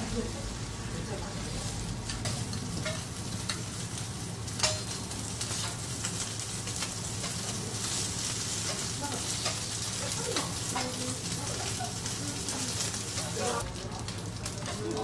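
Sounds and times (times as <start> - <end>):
steak sizzling on a griddle: 0.0 - 15.0
metal spatula clinking on plate: 4.6 - 5.0.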